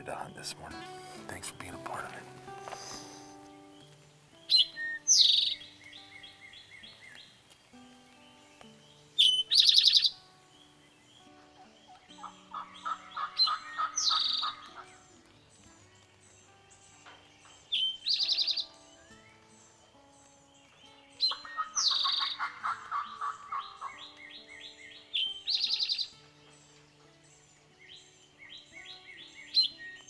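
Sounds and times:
faint soft music: 0.0 - 30.0
small bird chirps: 2.8 - 30.0
bird buzzy call: 12.2 - 15.0, 21.3 - 24.0.

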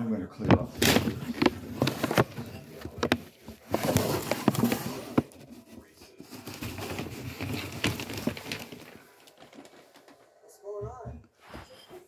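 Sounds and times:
wrapping paper crinkling: 0.7 - 10.1.

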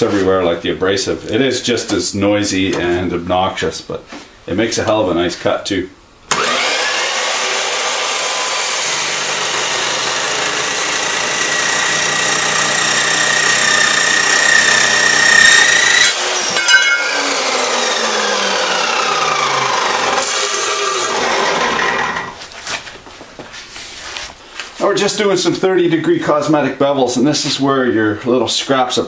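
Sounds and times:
saw cutting steel with ringing whine: 6.4 - 21.2.

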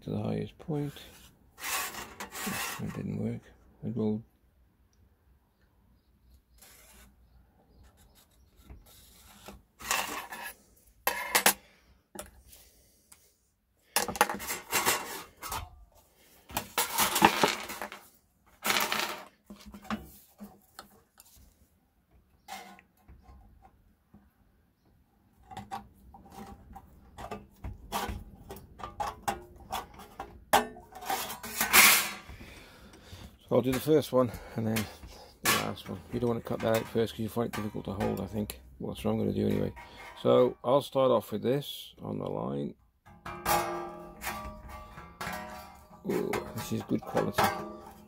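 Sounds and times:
metal sheet clattering on table: 14.0 - 15.7, 16.5 - 20.2, 28.8 - 32.3, 34.8 - 38.4, 43.1 - 48.0.

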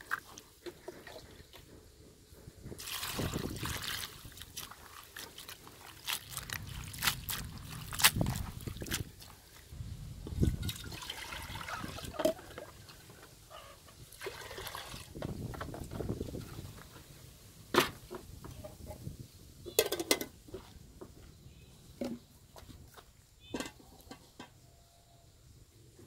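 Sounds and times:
water sloshing in metal pot: 2.8 - 9.6, 10.4 - 13.3, 14.1 - 15.3.

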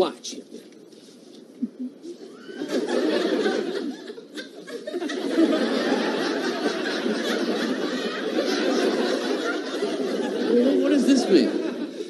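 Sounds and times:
studio audience laughing: 2.3 - 12.0.

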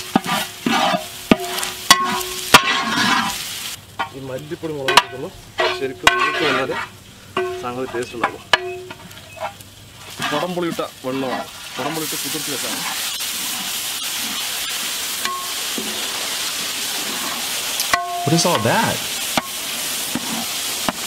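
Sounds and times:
wooden spoon scraping metal pot: 0.0 - 3.4, 5.6 - 8.0, 8.6 - 16.0
food sizzling in a pan: 0.0 - 21.0.

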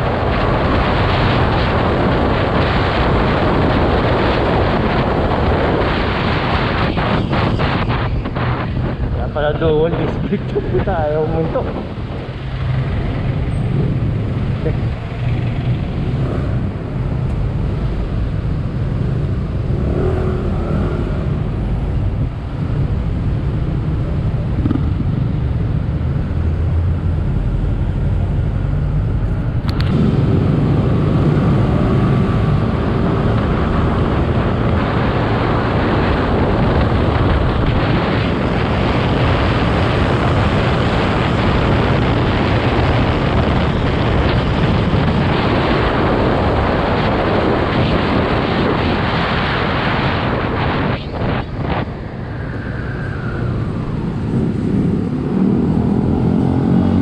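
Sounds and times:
road noise: 0.0 - 57.0
wind rushing over microphone: 0.0 - 57.0.

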